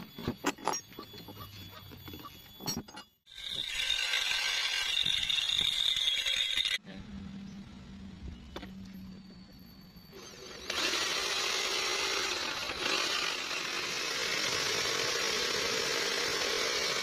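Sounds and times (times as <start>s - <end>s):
metal parts clinking: 0.1s - 3.2s.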